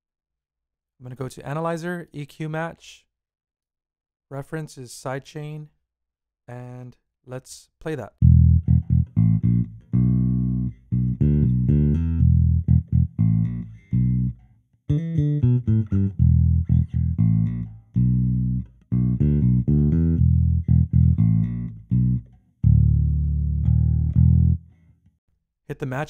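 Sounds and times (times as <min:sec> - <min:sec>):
plucked electric bass notes: 0:08.2 - 0:24.8.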